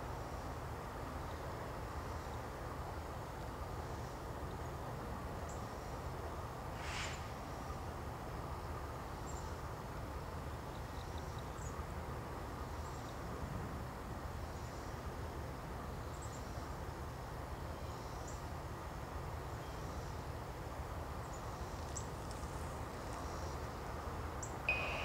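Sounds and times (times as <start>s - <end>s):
short hiss: 6.7s - 7.4s
faint high chirps: 24.4s - 25.0s.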